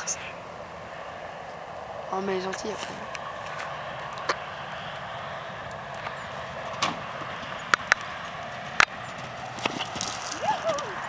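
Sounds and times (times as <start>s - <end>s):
outdoor background hiss: 0.0s - 11.0s
sharp knocks and clicks: 6.7s - 8.1s.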